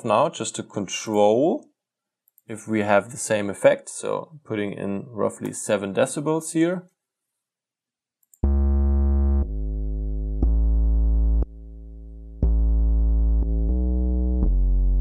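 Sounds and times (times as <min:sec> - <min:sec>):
synthesized bass notes: 0:08.4 - 0:15.0.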